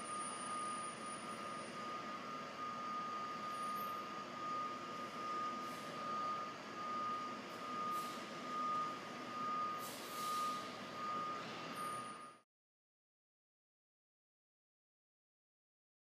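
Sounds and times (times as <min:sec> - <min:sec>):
reversing alarm beeping: 0:00.0 - 0:12.4.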